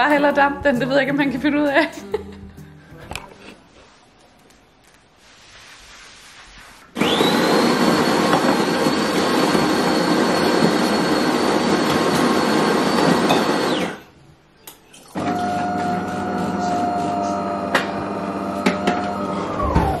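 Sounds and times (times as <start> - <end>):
coffee grinder whirring: 7.0 - 14.1, 15.2 - 20.0.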